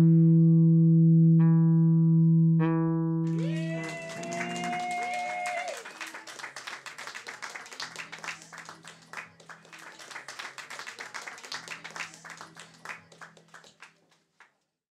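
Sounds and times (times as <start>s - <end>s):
crowd applauding: 3.3s - 14.6s.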